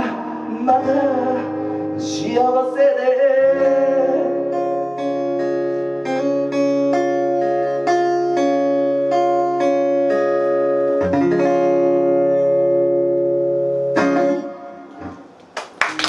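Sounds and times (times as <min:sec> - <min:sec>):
acoustic guitar picking: 0:03.3 - 0:15.4.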